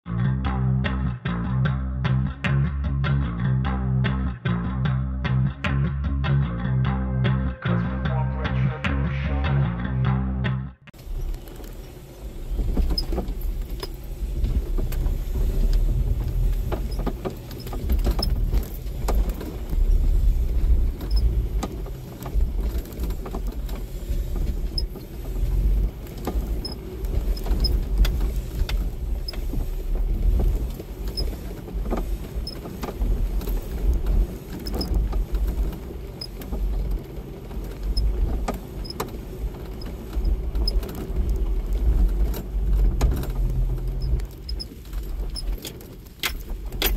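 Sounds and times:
engine and tyres rumbling: 0:00.0 - 0:46.9
vehicle knocks and rattles: 0:11.0 - 0:46.9.

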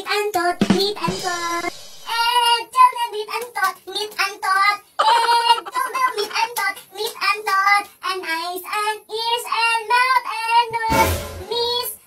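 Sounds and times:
high childlike voice singing: 0:00.0 - 0:12.0.

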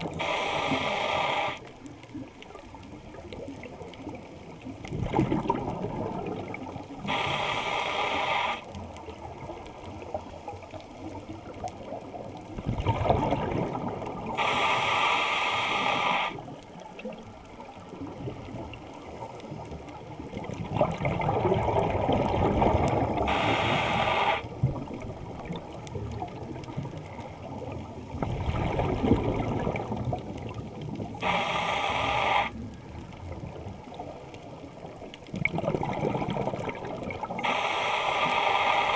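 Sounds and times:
exhaled bubbles gushing underwater: 0:00.0 - 0:38.9
regulator inhale hiss: 0:00.1 - 0:01.7, 0:07.0 - 0:08.8, 0:14.3 - 0:16.5, 0:23.2 - 0:24.6, 0:31.2 - 0:32.6, 0:37.4 - 0:38.9.

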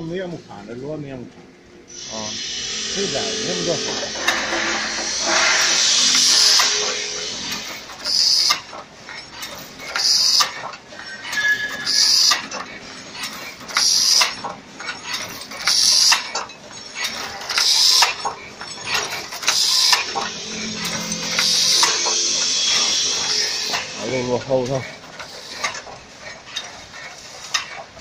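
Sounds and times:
machine hissing bursts: 0:01.9 - 0:08.8, 0:09.8 - 0:10.5, 0:13.7 - 0:14.4, 0:15.2 - 0:25.9
machine clicking and clattering: 0:09.4 - 0:20.0.

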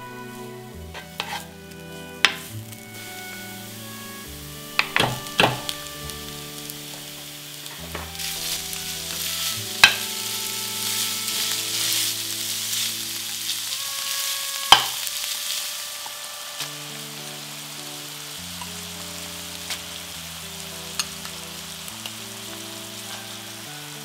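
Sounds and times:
spatula stirring meat: 0:00.3 - 0:06.8, 0:07.6 - 0:16.0
meat sizzling in frying pan: 0:00.3 - 0:24.0.

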